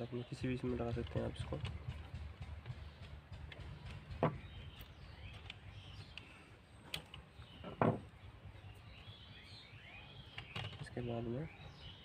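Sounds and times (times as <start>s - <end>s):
faint bird chirps: 3.8s - 12.0s.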